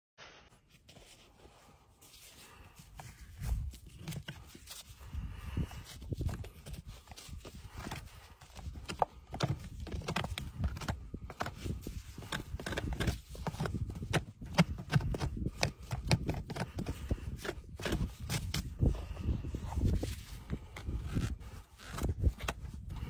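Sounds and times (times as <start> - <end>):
hand tool scraping horse's hoof: 6.0 - 23.0.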